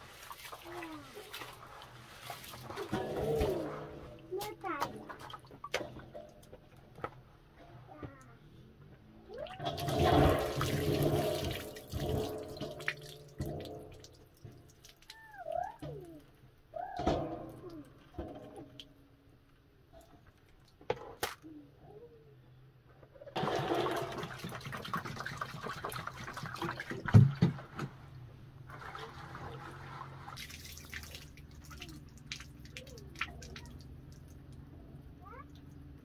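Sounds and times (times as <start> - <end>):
water splashing into basin: 0.0 - 4.2, 9.3 - 15.6, 23.4 - 27.6, 28.7 - 34.6
water trickling: 9.3 - 16.2, 28.7 - 34.7.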